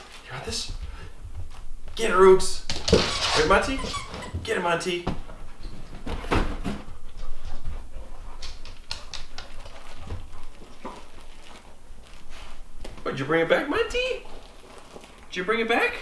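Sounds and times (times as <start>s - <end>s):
dogs playing clicks and scuffs: 5.4s - 13.0s.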